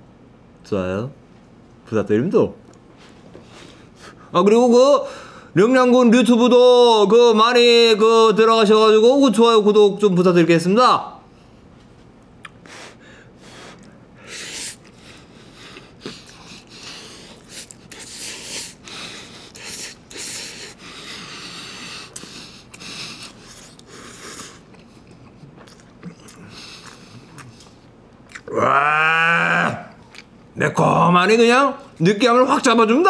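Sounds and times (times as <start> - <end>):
sniffs through the nose: 12.6 - 24.6.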